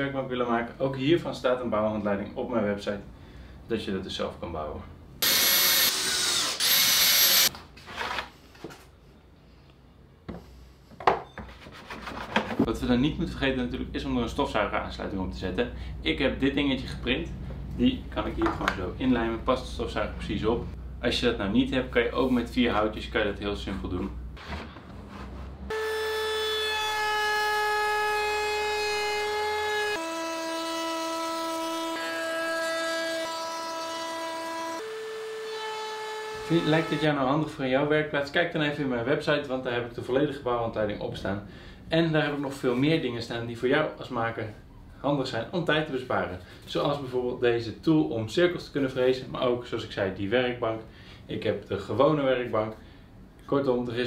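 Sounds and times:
router whining: 5.2s - 7.5s.

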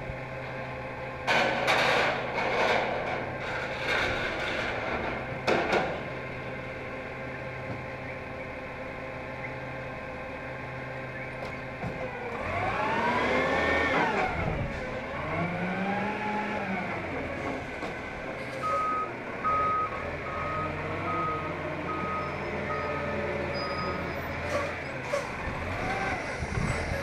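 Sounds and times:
engine revving: 12.2s - 17.6s, 24.4s - 27.0s.

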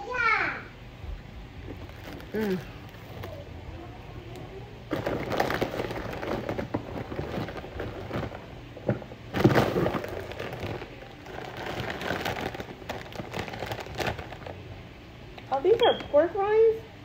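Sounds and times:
plastic snack bags crinkling: 1.6s - 3.4s, 4.9s - 14.7s.

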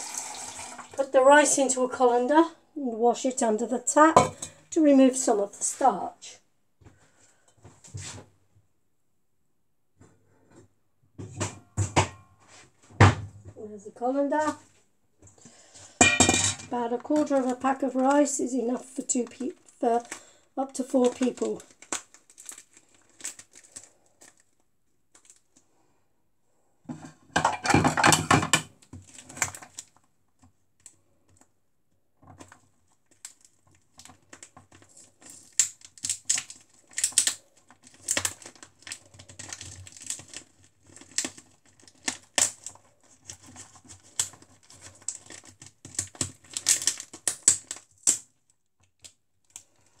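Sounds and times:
packet rustling: 16.6s - 25.6s, 29.0s - 30.1s, 32.3s - 50.0s.

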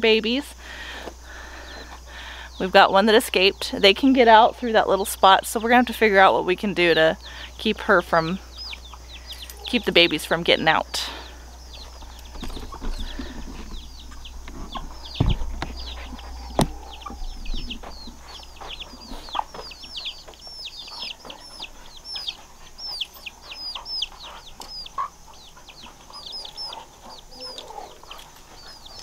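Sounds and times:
chicks peeping: 1.0s - 29.0s
hen clucking: 4.3s - 29.0s.

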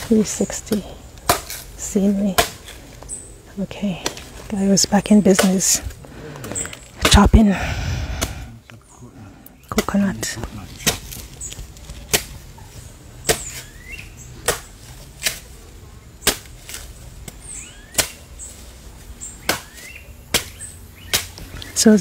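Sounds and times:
machete chopping coconut husk: 0.7s - 1.7s, 2.3s - 2.8s, 10.8s - 12.4s, 13.2s - 15.6s, 16.2s - 18.3s, 19.4s - 21.5s.

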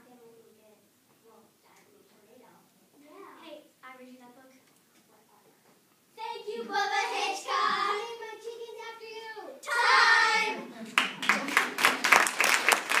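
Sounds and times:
girls singing together: 6.2s - 8.4s
audience applause: 10.8s - 13.0s.

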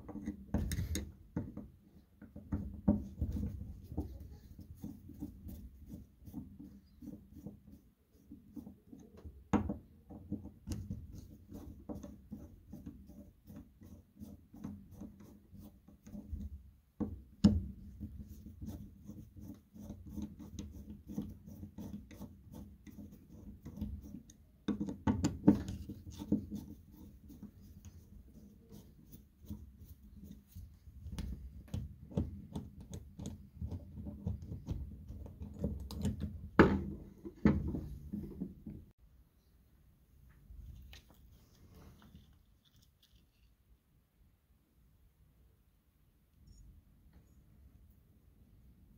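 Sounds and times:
pump rubbing in hand: 3.0s - 9.2s, 25.5s - 35.8s, 40.8s - 43.6s.

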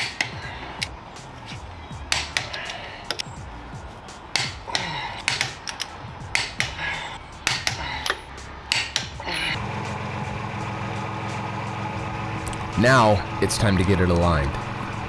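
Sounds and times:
background music: 0.0s - 15.0s
socket wrench clicking: 2.1s - 3.3s, 4.3s - 6.8s, 7.4s - 9.3s.

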